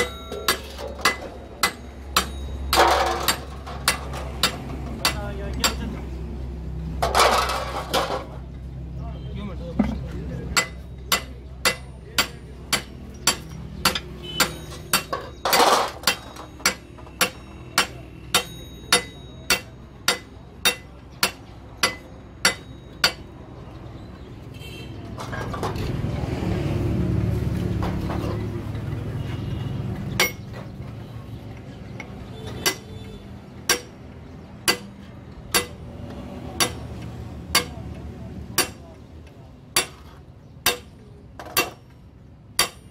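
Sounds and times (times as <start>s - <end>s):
hammer ringing on steel: 0.0s - 5.8s, 10.6s - 23.3s, 42.6s - 42.9s.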